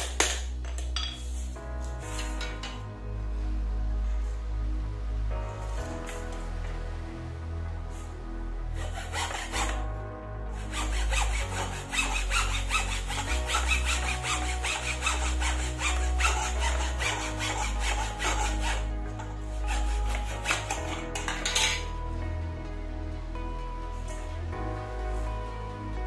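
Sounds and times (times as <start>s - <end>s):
background music: 0.0s - 26.0s
hacksaw cutting wood: 8.8s - 9.8s, 10.6s - 18.9s, 19.6s - 21.8s.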